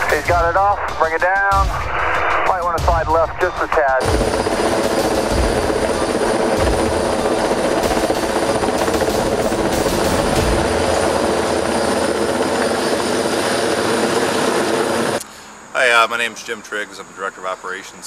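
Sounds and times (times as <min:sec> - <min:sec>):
helicopter rotor and engine drone: 0:03.8 - 0:15.8.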